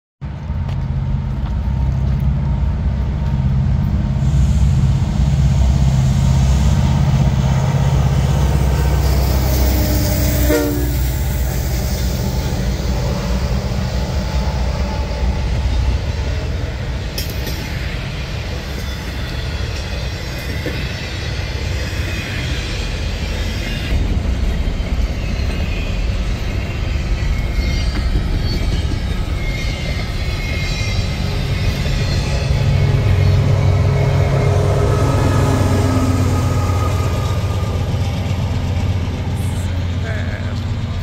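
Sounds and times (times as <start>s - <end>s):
locomotive engines rumbling: 0.2s - 41.0s
train wheels on rails: 0.2s - 41.0s.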